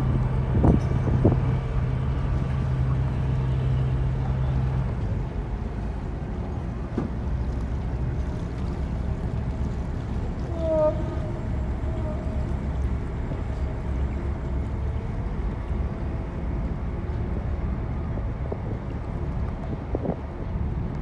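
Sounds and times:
wind on microphone: 0:00.0 - 0:03.2, 0:17.4 - 0:21.0
boat engine rumbling: 0:00.0 - 0:21.0.

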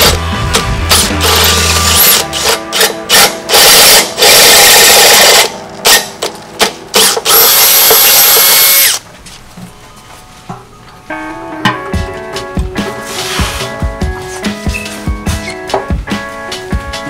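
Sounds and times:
cordless drill drilling metal: 0:00.9 - 0:06.1, 0:07.0 - 0:09.0.

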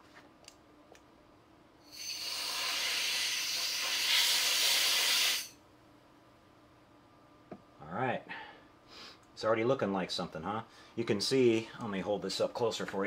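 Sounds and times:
aerosol spray can hissing: 0:02.0 - 0:05.5.

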